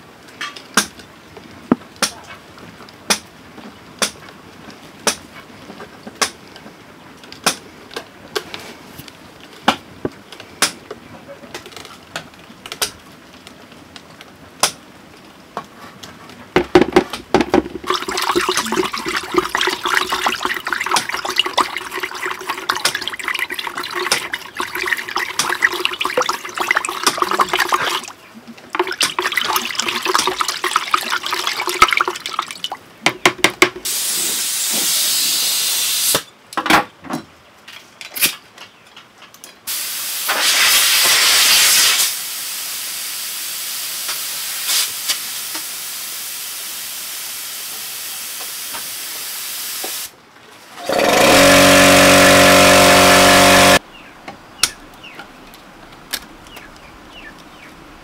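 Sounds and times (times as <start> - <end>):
paint stirred in plastic bucket: 17.3 - 32.8.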